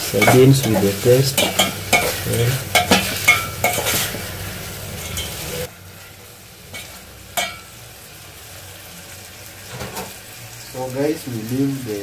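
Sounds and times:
food sizzling in pan: 0:00.0 - 0:12.0
metal spoon scraping pot: 0:00.1 - 0:05.7.

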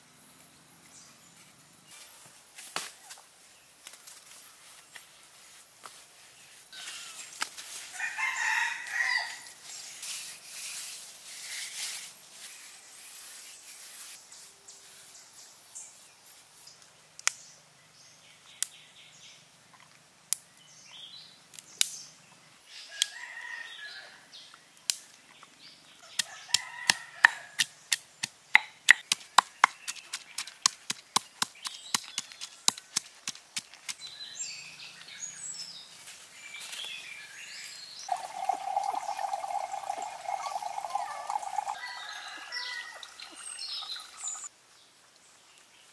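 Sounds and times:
bird calls: 0:36.6 - 0:44.5.

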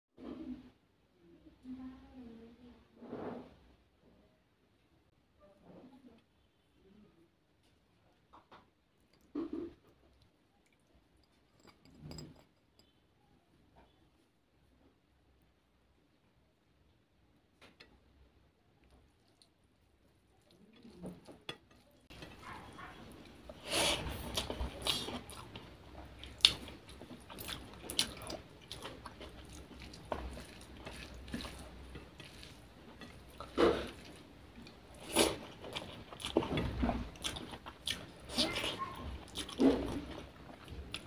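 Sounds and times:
person chewing food: 0:18.8 - 0:41.0.

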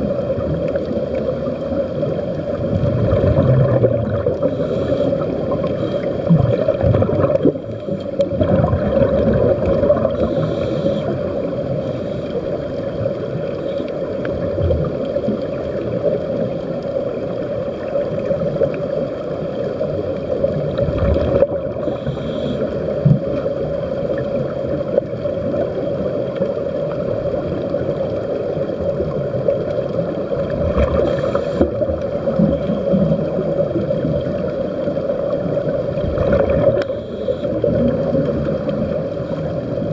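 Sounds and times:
muffled underwater rumble: 0:00.0 - 0:39.9
air bubbling: 0:02.6 - 0:11.0, 0:20.7 - 0:22.2, 0:35.8 - 0:39.0.

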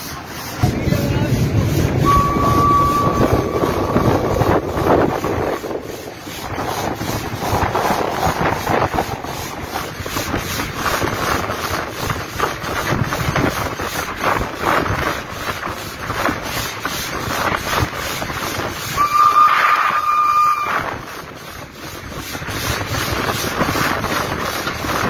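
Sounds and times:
steam locomotive running: 0:00.0 - 0:25.0
wind rushing over microphone: 0:00.0 - 0:25.0
faint even pulse: 0:01.8 - 0:05.4.

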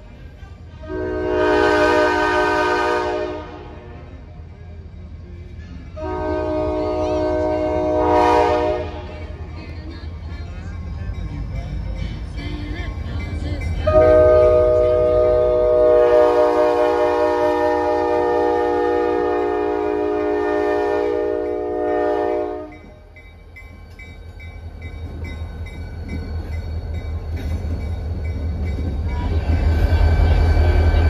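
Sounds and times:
locomotive engine rumble: 0:00.0 - 0:31.0
locomotive air horn: 0:00.8 - 0:03.9, 0:06.0 - 0:09.1, 0:13.9 - 0:22.8
crossing bell ringing: 0:09.2 - 0:15.7, 0:22.4 - 0:31.0.

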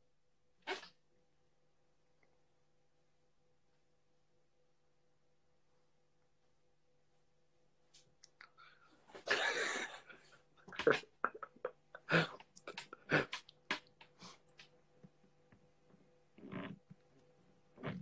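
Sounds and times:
man laughing breathily: 0:09.2 - 0:13.4.

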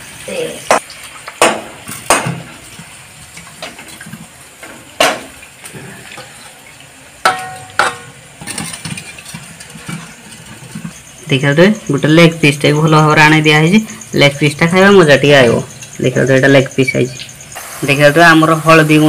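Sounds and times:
knocks against steel bowl: 0:07.3 - 0:08.6.

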